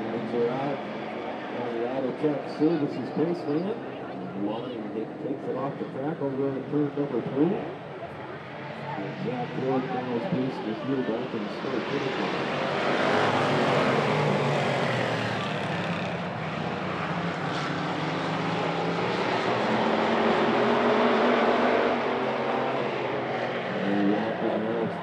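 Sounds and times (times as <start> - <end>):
race car engines drone: 0.0 - 25.0.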